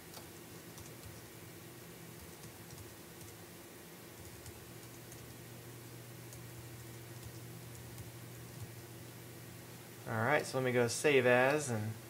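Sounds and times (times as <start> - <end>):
faint keyboard typing: 0.0 - 1.4, 2.1 - 3.5, 4.1 - 8.8
steady low hum: 0.0 - 12.0.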